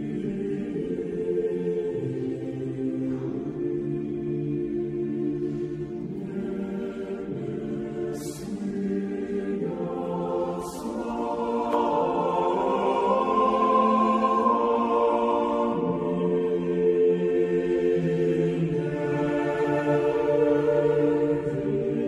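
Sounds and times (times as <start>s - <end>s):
choir singing sustained chords: 0.0s - 22.0s.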